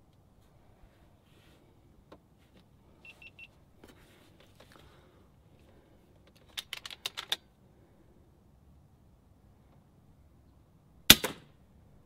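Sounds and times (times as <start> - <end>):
short high beeps: 3.0 - 3.5
air rifle clicks: 6.3 - 7.5.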